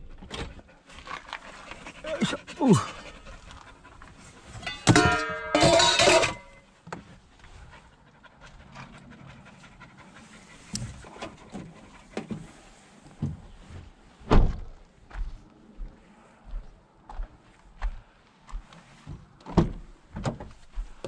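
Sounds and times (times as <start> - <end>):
dogs panting: 0.3 - 4.8, 7.3 - 13.1
tailgate slamming shut: 14.3 - 14.6.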